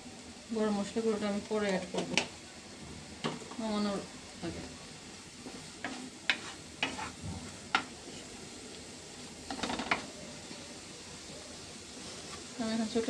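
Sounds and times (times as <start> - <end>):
steady sizzle: 0.0 - 13.0
spatula scraping frying pan: 5.4 - 8.4.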